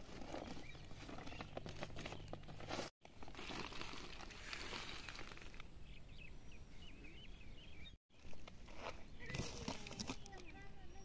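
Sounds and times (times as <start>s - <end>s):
plastic sack rustling: 0.0s - 5.6s
small birds chirping: 0.2s - 2.8s, 4.3s - 11.0s.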